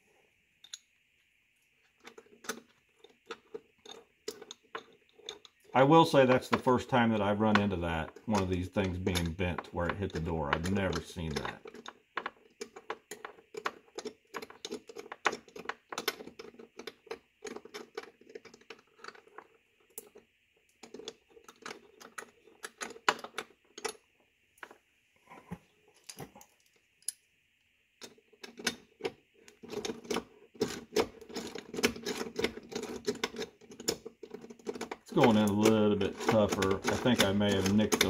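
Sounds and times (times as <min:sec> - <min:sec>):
light clicking and rattling: 0:28.0 - 0:38.0.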